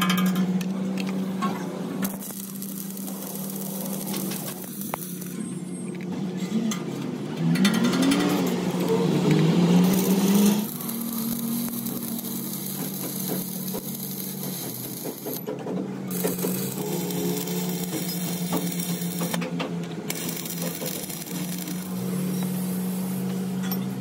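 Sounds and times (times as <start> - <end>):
welding arc crackling and sizzling: 2.0 - 5.5, 9.2 - 15.5, 16.1 - 19.4, 20.0 - 23.6.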